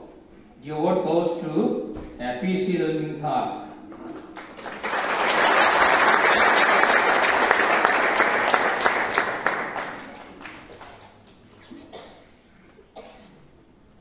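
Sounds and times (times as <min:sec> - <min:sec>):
audience applauding: 0:04.0 - 0:11.3.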